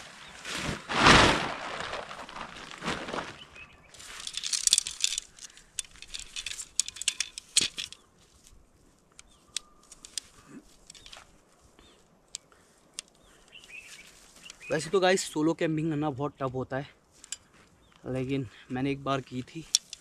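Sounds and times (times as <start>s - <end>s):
tent fabric rustling: 0.0s - 5.2s
tent poles clicking together: 4.0s - 11.3s, 12.3s - 13.3s, 14.0s - 14.8s, 19.5s - 20.0s.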